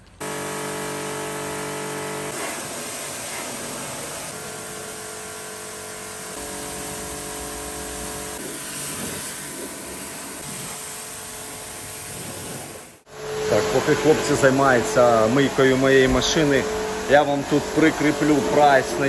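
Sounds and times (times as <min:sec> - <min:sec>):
pressure washer spraying water: 0:00.2 - 0:19.0
steady hum: 0:06.1 - 0:11.0, 0:13.1 - 0:19.0.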